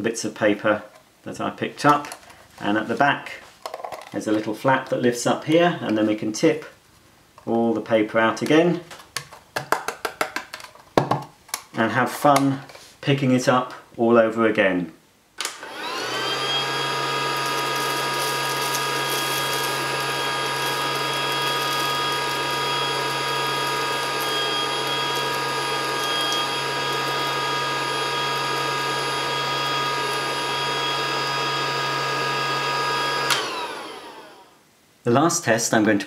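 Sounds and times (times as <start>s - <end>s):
toy vacuum cleaner motor whirring: 15.6s - 34.5s.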